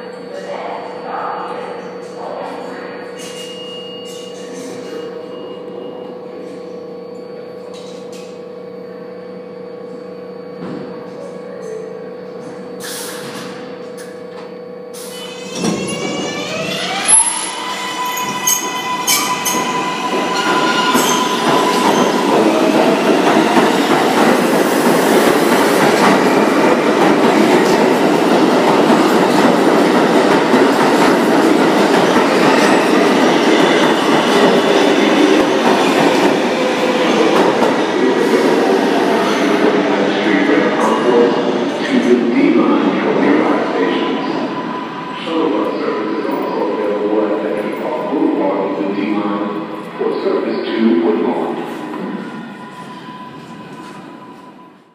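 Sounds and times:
train propulsion whine: 0.0s - 54.9s
train wheels rumbling on rail: 15.2s - 42.3s.

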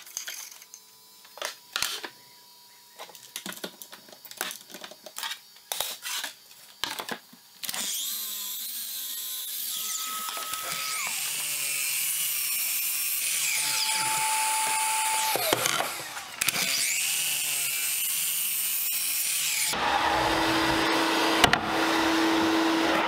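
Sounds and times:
clicks and knocks of tools handled: 0.0s - 2.2s
miter saw motor whine: 0.4s - 23.0s.

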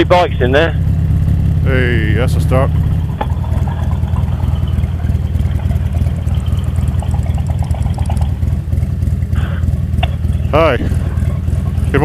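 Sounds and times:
motorcycle engine rumbling: 0.0s - 12.0s.

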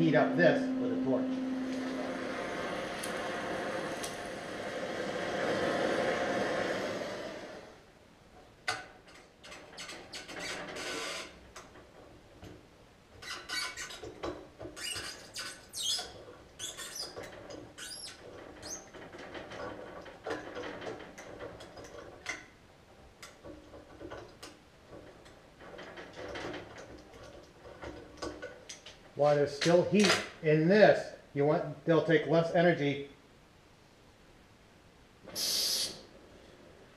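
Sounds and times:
metal scraping: 0.0s - 7.6s
short squeaks of threads: 14.7s - 18.9s.

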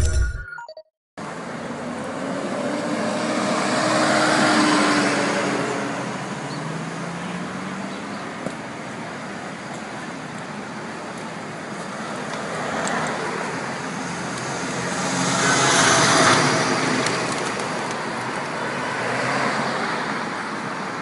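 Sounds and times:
electronic logo jingle: 0.0s - 0.8s
street traffic noise: 1.2s - 21.0s
bus passing close by: 1.3s - 9.6s, 11.8s - 21.0s.

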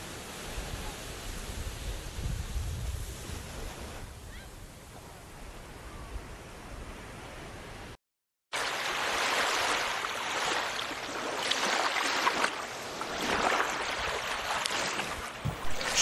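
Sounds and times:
faint hiss: 0.0s - 4.0s
water rushing and splashing: 8.5s - 16.0s.

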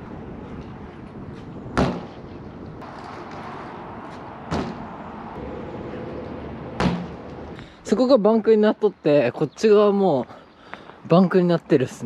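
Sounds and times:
bike landing on concrete: 1.8s - 2.2s, 2.8s - 4.9s, 6.8s - 7.3s.

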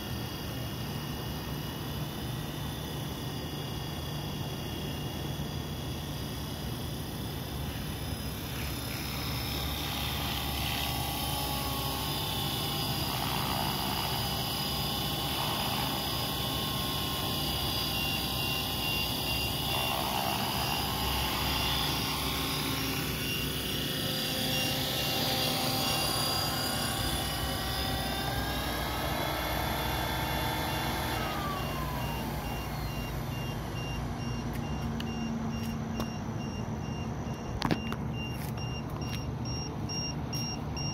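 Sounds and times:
helicopter motor and rotor whining: 0.0s - 40.9s
low-battery alarm beeping: 9.2s - 28.4s, 31.2s - 40.9s.

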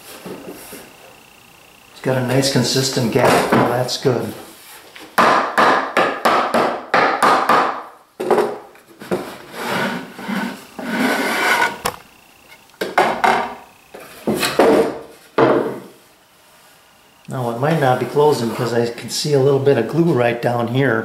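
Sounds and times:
wooden lid scraping on wood: 9.0s - 11.9s.

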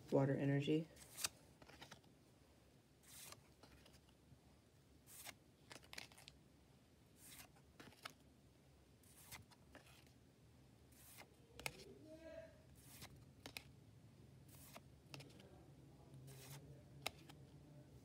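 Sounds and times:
trading cards swishing: 1.0s - 2.0s, 3.0s - 4.1s, 5.1s - 6.2s, 7.2s - 8.2s, 9.1s - 10.1s, 11.0s - 11.9s, 12.8s - 13.7s, 14.5s - 15.5s, 16.2s - 17.4s.

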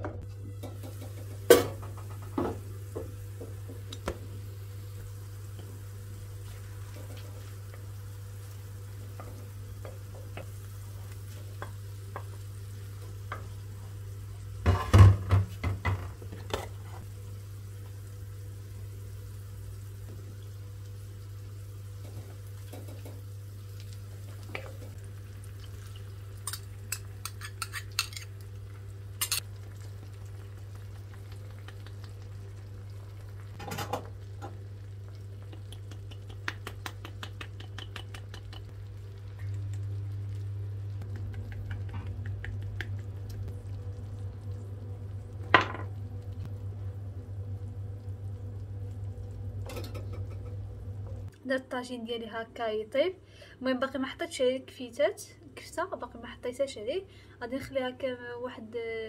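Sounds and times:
steady low hum: 0.0s - 51.4s
wooden spoon stirring and scraping: 16.2s - 17.1s.

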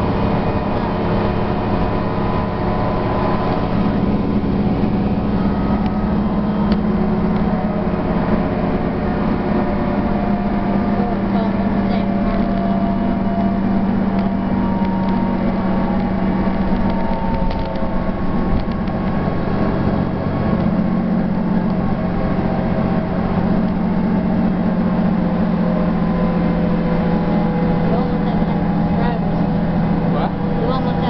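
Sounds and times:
bus engine drone: 0.0s - 31.0s
road noise: 0.0s - 31.0s.

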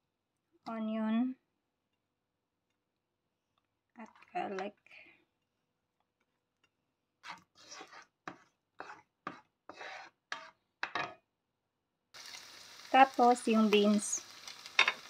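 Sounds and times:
spatula scraping frying pan: 6.6s - 11.2s
frying sizzle: 12.2s - 15.0s.

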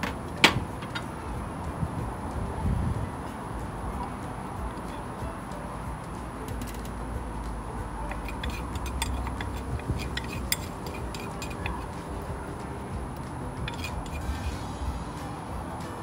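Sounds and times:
metal spoon scraping a pot: 8.1s - 12.1s, 13.6s - 14.7s.

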